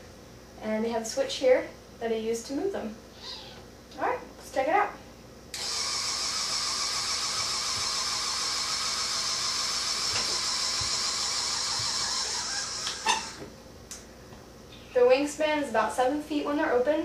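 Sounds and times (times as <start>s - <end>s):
motors whining: 5.6s - 13.5s.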